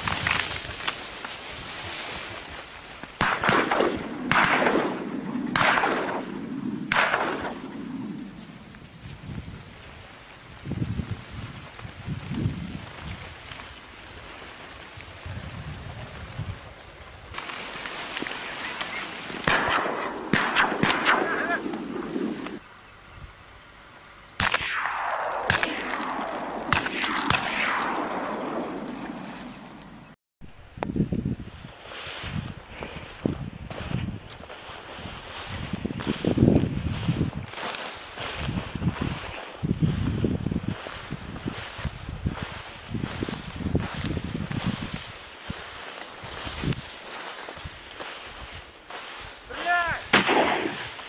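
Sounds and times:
shotgun shots echoing: 0:03.2 - 0:08.3, 0:19.4 - 0:22.6, 0:24.4 - 0:29.8, 0:50.1 - 0:51.0.

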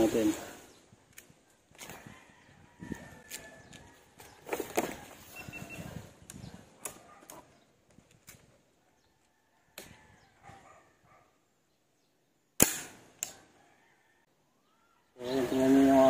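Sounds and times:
air rifle shot: 0:12.6 - 0:13.3.

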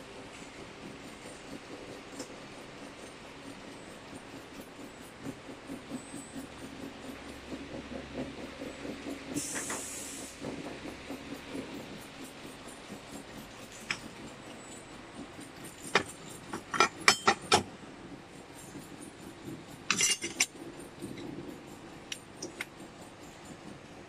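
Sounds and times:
metal plates clinking: 0:19.9 - 0:20.5.

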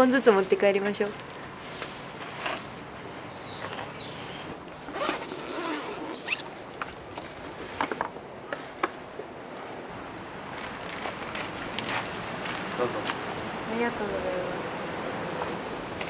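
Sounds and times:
zipper being pulled: 0:04.1 - 0:06.6.

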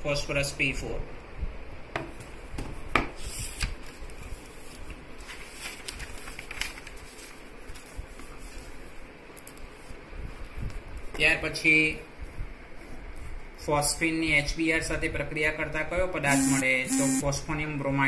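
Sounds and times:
low room noise: 0:00.0 - 0:18.0
paper rustling: 0:03.2 - 0:10.0.

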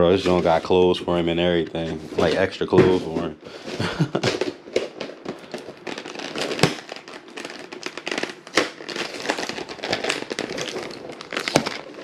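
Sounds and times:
plastic packaging crackling: 0:00.0 - 0:12.0.

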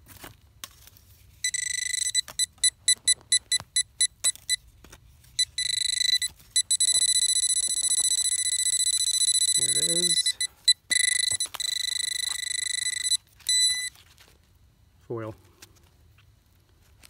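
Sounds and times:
pinpointer probe alert tone: 0:01.4 - 0:04.6, 0:05.4 - 0:13.9.

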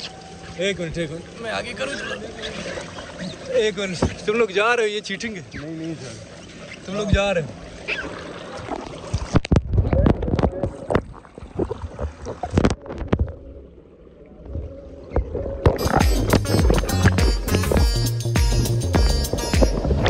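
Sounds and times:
water splashing: 0:00.0 - 0:20.0
background music: 0:15.8 - 0:20.0.

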